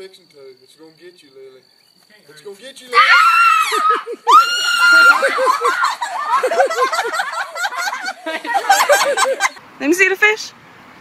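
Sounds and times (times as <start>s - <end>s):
girl screaming: 2.9s - 6.4s
girl yelping and laughing: 3.0s - 9.6s.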